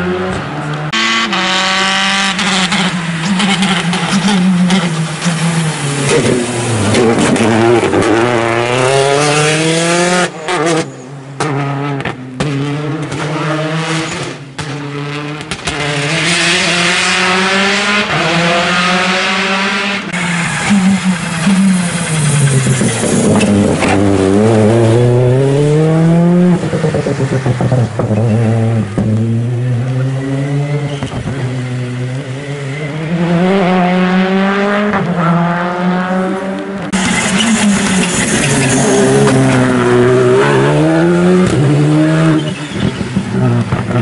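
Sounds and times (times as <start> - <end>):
rally car engine revving: 0.0 - 44.0.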